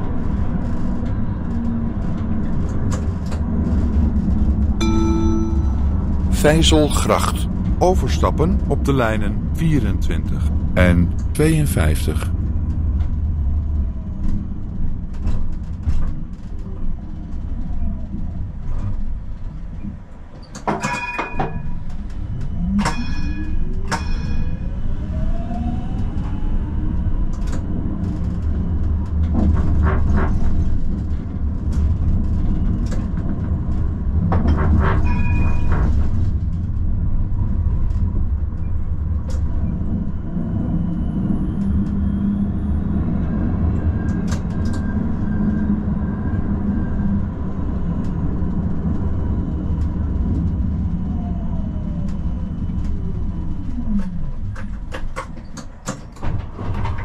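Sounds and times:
tram rumbling along rails: 0.0 - 57.0
tram signal ringing tones: 4.8 - 10.5.

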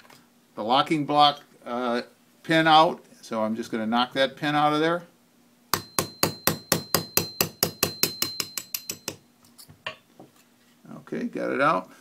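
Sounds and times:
hammer tapping a pin punch: 5.7 - 9.2.

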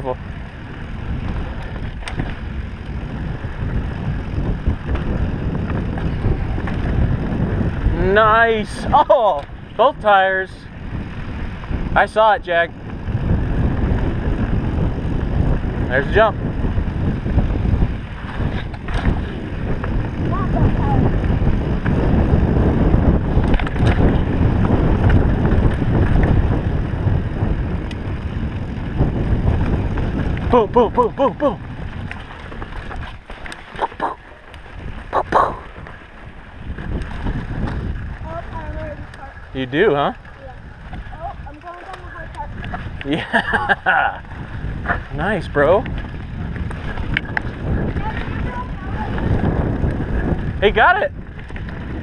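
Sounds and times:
bike tyre rumble and rattle: 0.0 - 52.0
trail chatter clicks: 0.0 - 52.0
wind buffeting microphone: 0.0 - 52.0.

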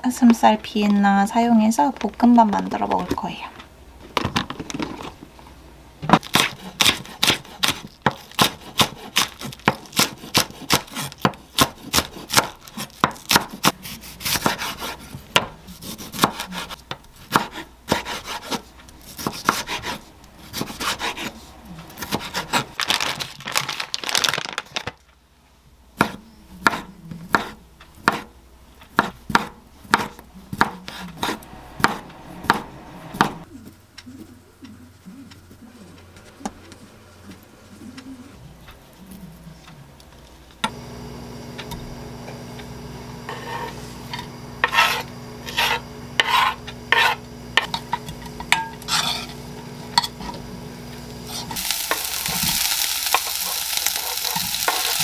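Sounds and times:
knife chopping on wooden board: 6.1 - 21.3, 26.0 - 28.3, 28.9 - 33.4, 44.6 - 49.2.

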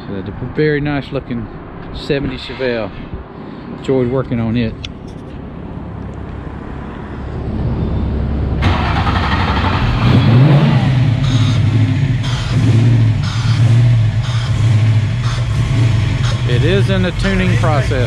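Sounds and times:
car engine revving: 5.0 - 18.0.

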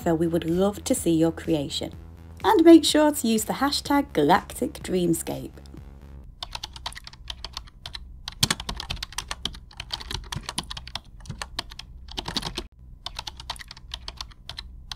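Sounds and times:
keyboard typing: 6.4 - 14.9.

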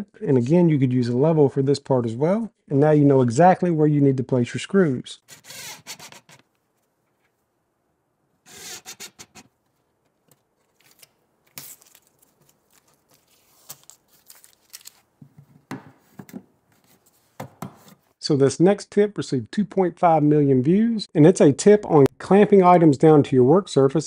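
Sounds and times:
tape peeling off with rustle: 8.5 - 15.1
handling sounds: 8.8 - 18.1.

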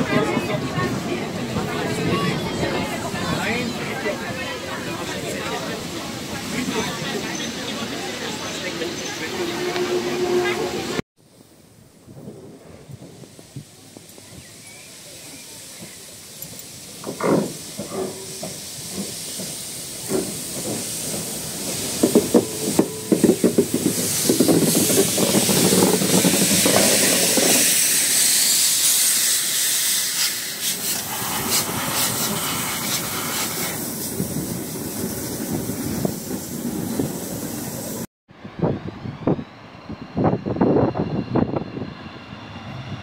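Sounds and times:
steam locomotive chuffs and knocks: 12.1 - 38.1
steam hissing: 13.0 - 38.1.

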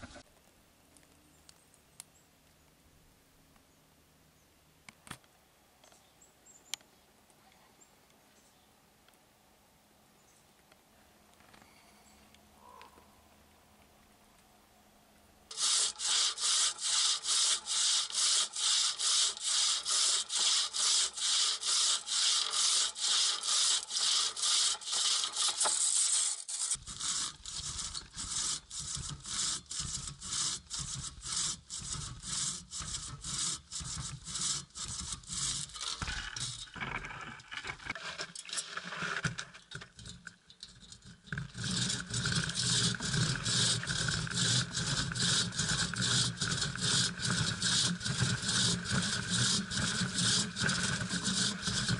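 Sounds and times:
hand saw cutting log: 15.5 - 39.4, 41.3 - 51.9.

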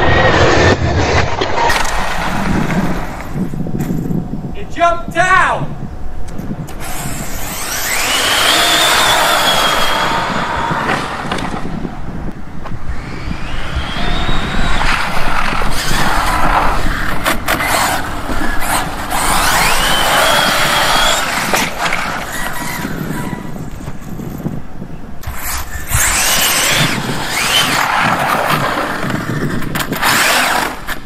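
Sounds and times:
tyre and drivetrain noise: 0.0 - 4.5, 6.0 - 31.0
rc car motor whine: 6.6 - 24.6, 25.2 - 31.0.

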